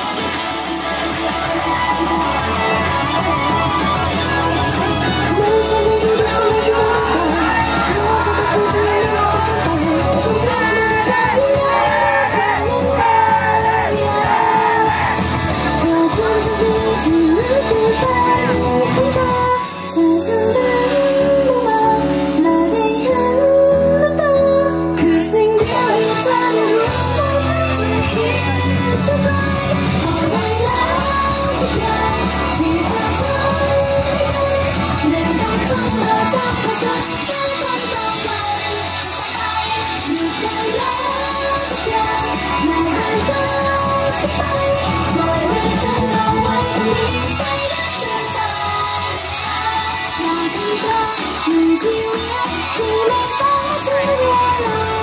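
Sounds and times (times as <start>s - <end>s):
crowd shouting: 0.0s - 15.8s
pop song over a pa: 0.0s - 55.0s
women singing into microphones: 0.0s - 55.0s.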